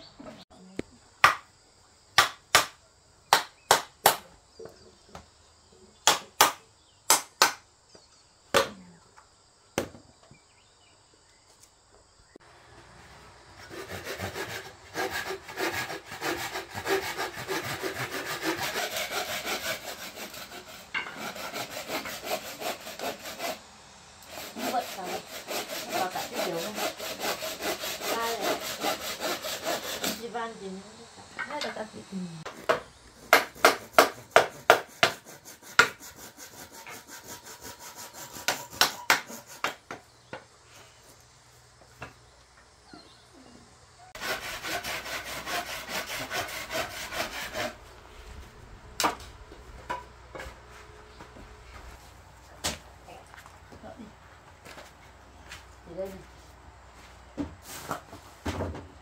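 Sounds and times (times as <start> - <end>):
sharp knocks on wood: 1.2 - 1.5, 2.2 - 4.2, 32.5 - 35.2
sawing wood: 13.5 - 30.5, 32.5 - 40.4, 44.1 - 48.0.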